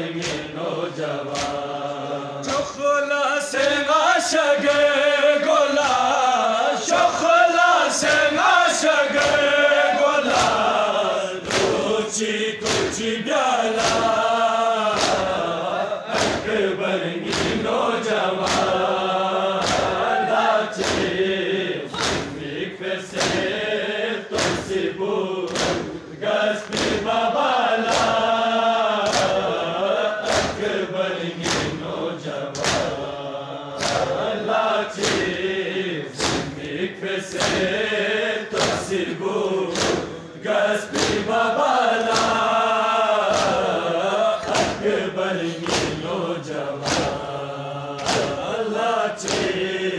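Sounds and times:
men chanting in unison: 0:00.0 - 0:49.9
rhythmic chest-beating strikes: 0:00.0 - 0:49.9.

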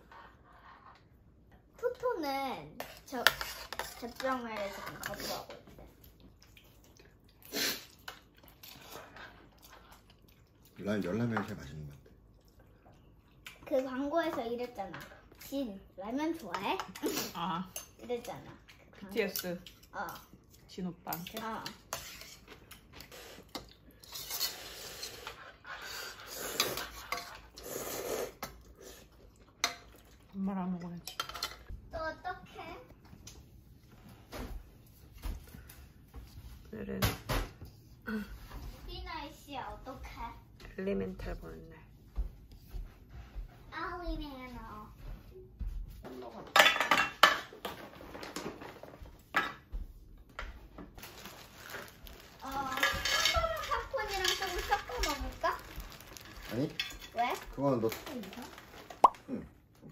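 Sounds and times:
spoons clinking against bowls: 0:52.8 - 0:55.2.

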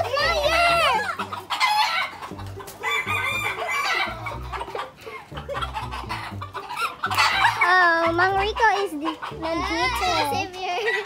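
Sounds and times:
chicken calls: 0:00.0 - 0:11.0
rooster crowing: 0:02.8 - 0:04.3.

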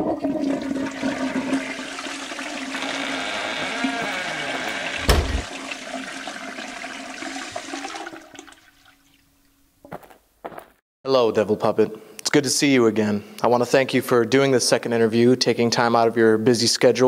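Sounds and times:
toilet flushing: 0:00.0 - 0:09.2.

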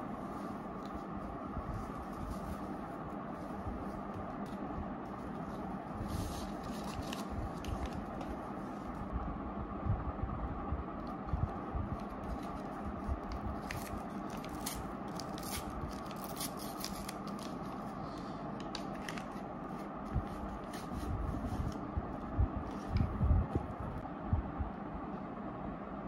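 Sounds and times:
tea sachet crinkling and tearing: 0:12.0 - 0:17.9.

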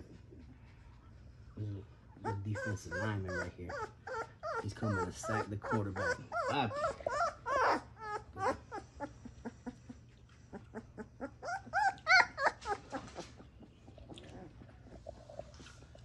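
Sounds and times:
puppies whimpering and squealing: 0:02.2 - 0:15.6.

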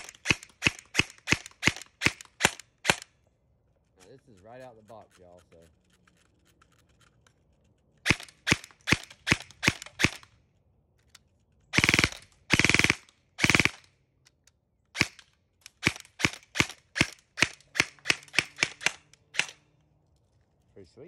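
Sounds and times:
airsoft rifle shots: 0:00.0 - 0:03.2, 0:08.0 - 0:10.3, 0:11.7 - 0:13.9, 0:14.9 - 0:19.7.

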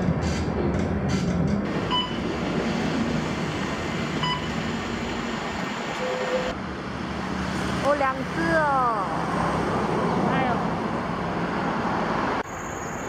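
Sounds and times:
bus engine and road rumble: 0:00.0 - 0:13.0
short electronic beeps: 0:01.9 - 0:02.2, 0:04.2 - 0:04.6.

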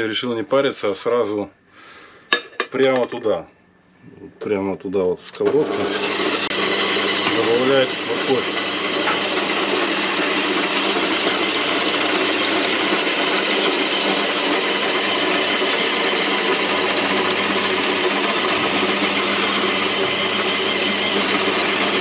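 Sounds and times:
electric grater motor hum: 0:05.4 - 0:22.0.

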